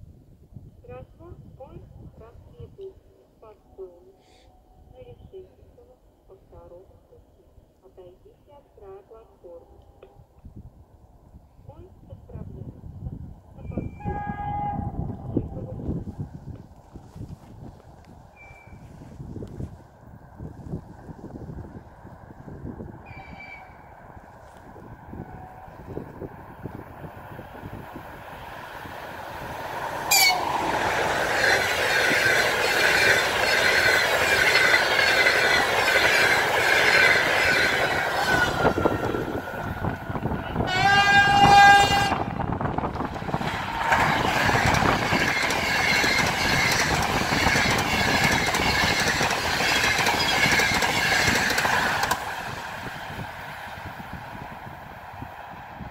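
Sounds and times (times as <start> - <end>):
train horn: 13.7 - 15.7, 23.1 - 23.8, 25.1 - 26.0, 30.1 - 30.7, 37.4 - 42.4
train rushing past: 20.3 - 55.9.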